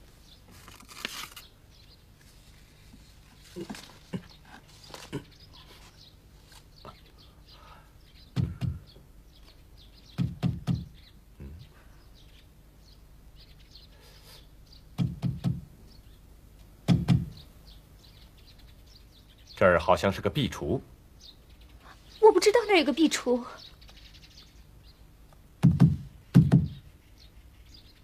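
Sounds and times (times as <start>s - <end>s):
knuckles knocking on wooden wall: 8.4s - 8.9s, 10.2s - 10.9s, 15.0s - 15.6s, 16.9s - 17.4s, 25.6s - 26.8s.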